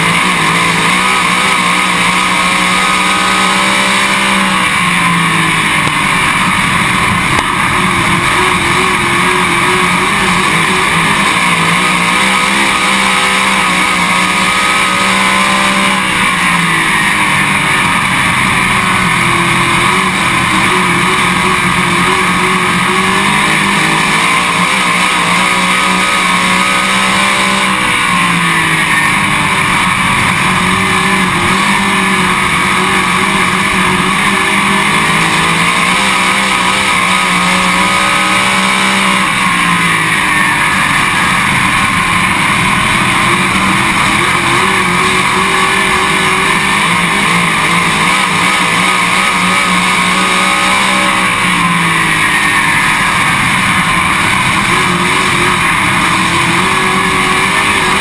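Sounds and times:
race car engine running hard: 0.0s - 58.0s.

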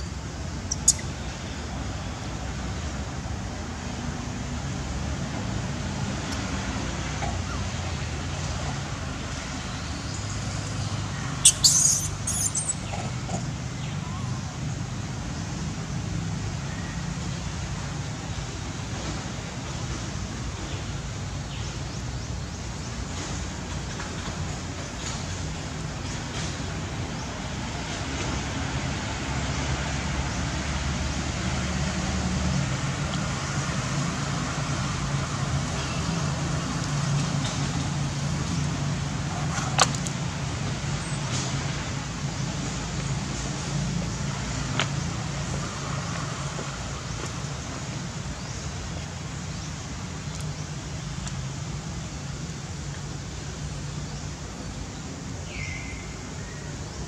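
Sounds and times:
monkey squeaks: 0.7s - 1.1s, 11.4s - 13.0s.

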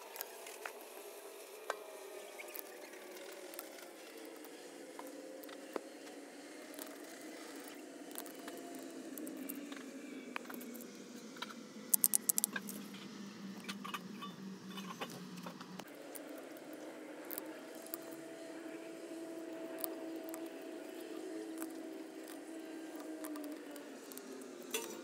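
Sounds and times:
steady low hum: 0.0s - 25.0s
plastic clicks and rattles: 11.9s - 12.8s.

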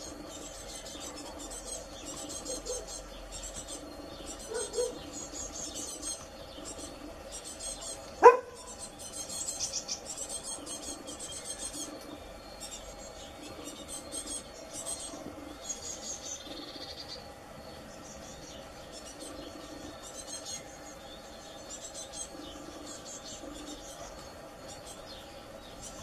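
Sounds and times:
dog barking: 4.5s - 5.0s, 8.2s - 8.6s.

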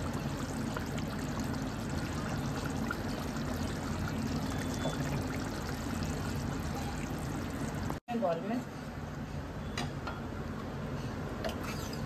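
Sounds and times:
gravy bubbling in a pan: 0.0s - 8.0s
low steady hum: 0.0s - 8.0s.

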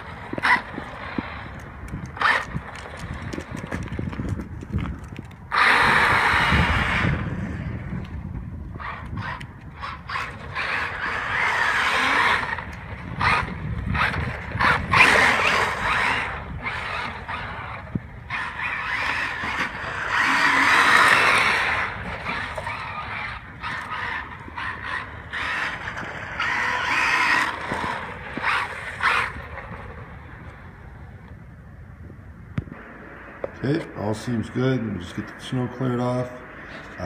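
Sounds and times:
toy car motor whining: 0.0s - 4.2s, 4.8s - 7.6s, 8.7s - 30.0s
tyres through snow and slush: 0.0s - 31.0s.

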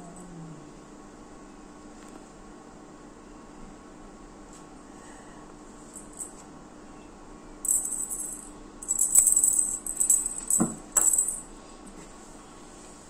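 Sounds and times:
cat toy jingling: 7.7s - 11.5s.

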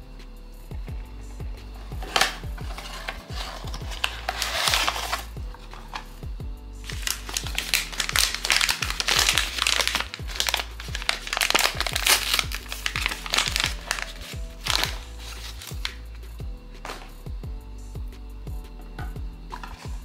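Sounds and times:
background music with steady beat: 0.0s - 20.0s
packaging crinkling: 1.9s - 6.2s, 6.8s - 16.1s.

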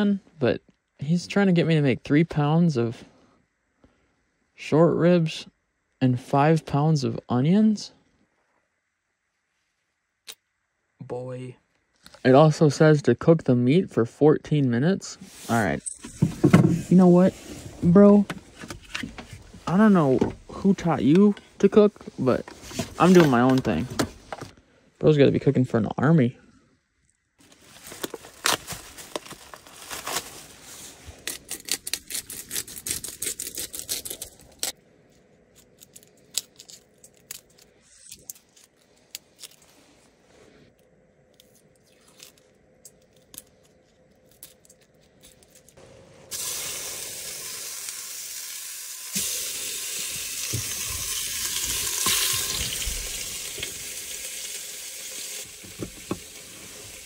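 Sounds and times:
plastic packaging tearing and crinkling: 27.4s - 34.8s, 35.5s - 39.7s
steady loud hiss: 45.8s - 57.0s.

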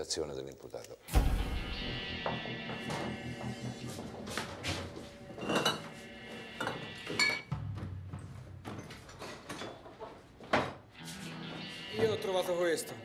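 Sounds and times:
glass jars clinking: 5.4s - 6.0s, 6.6s - 7.5s.

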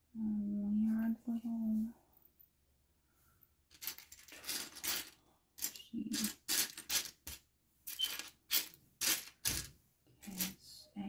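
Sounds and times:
plastic bricks clattering: 3.7s - 9.7s.

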